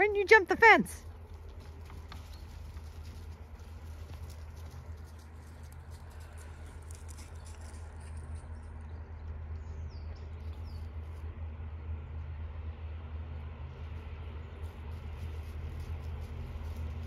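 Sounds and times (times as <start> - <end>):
steady low rumble: 0.0 - 17.0
footsteps crunching on frosty grass: 14.5 - 17.0.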